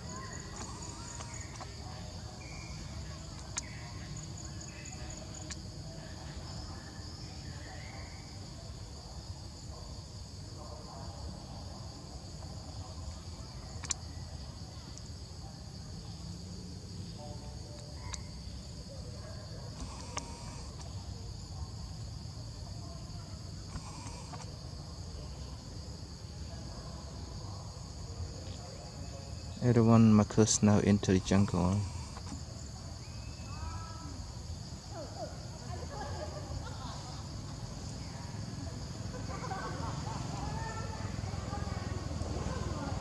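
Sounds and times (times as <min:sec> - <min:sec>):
insects shrilling: 0:00.0 - 0:08.4, 0:12.9 - 0:25.7, 0:29.2 - 0:38.6
faint sharp clicks: 0:03.3 - 0:03.8, 0:13.8 - 0:14.0.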